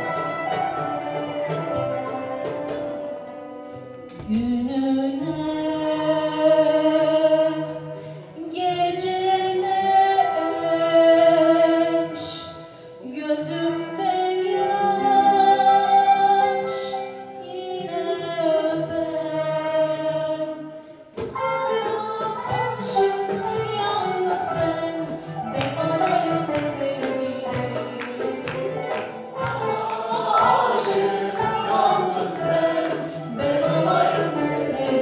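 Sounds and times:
mixed choir singing: 22.8 - 35.0.

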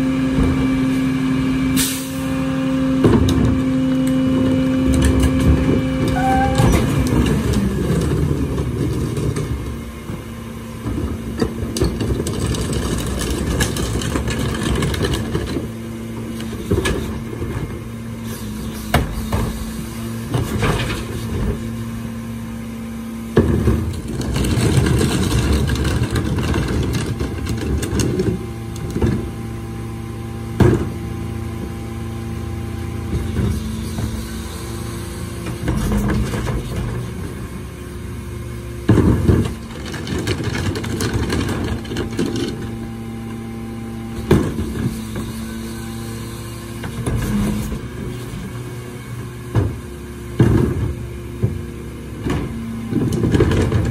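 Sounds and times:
trash tipped into hopper: 3.0 - 9.6.

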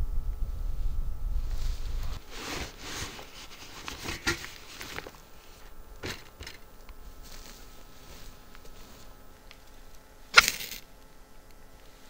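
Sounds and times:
rustling of camp gear: 1.4 - 12.0
footsteps on forest ground: 1.5 - 10.8.

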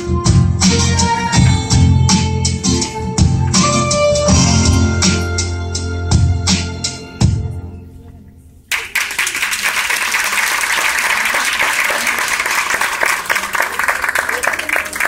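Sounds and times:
audience applauding: 8.7 - 15.0.

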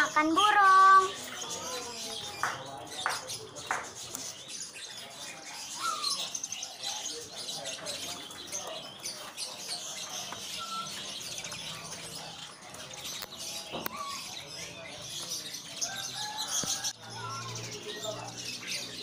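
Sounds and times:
songbirds chirping and twittering: 0.0 - 19.0
whistled bird calls: 5.7 - 6.5.

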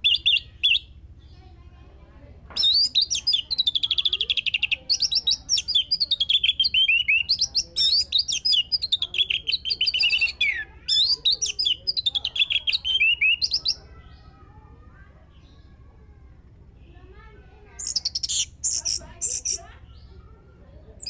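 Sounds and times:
thrush singing whistles and trills: 0.0 - 1.0, 2.6 - 13.9, 17.8 - 19.7.

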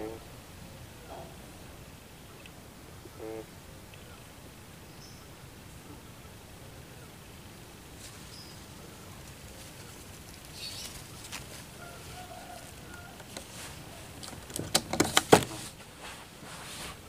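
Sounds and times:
dove wings flapping: 8.0 - 15.8.

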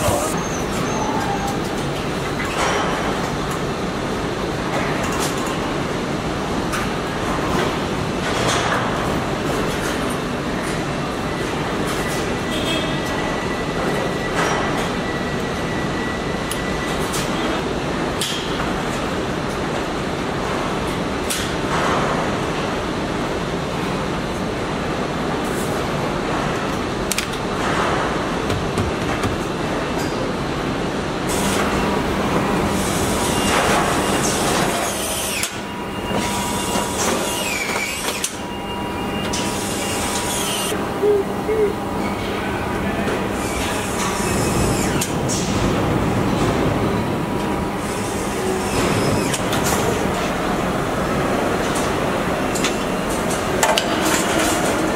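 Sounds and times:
short squeal: 0.0 - 1.7
din of factory machinery: 0.0 - 54.9.

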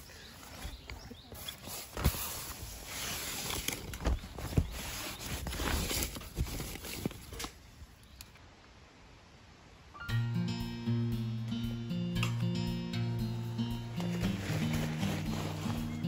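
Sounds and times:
nylon fabric rustling: 0.0 - 7.8, 13.6 - 16.0.

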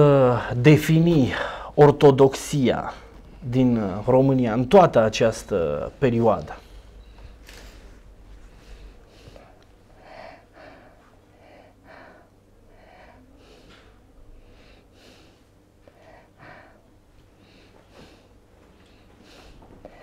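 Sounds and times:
man breathing softly: 1.4 - 1.8, 6.6 - 20.0.

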